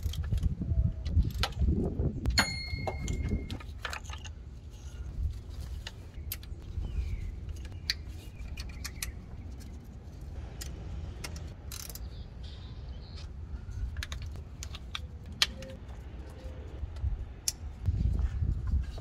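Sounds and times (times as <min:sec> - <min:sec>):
plastic connectors clicking and rattling: 0:13.8 - 0:15.8.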